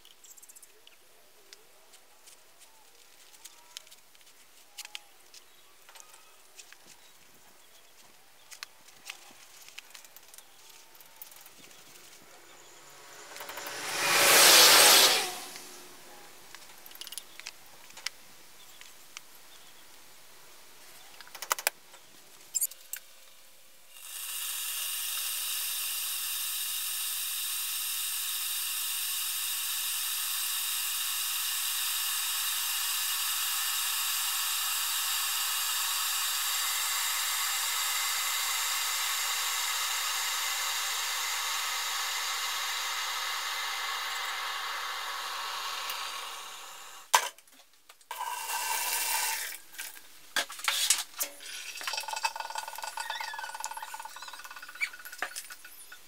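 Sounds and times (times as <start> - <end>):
electric kettle heating water: 11.2 - 17.5, 24.0 - 47.3, 48.1 - 50.0, 51.8 - 56.0.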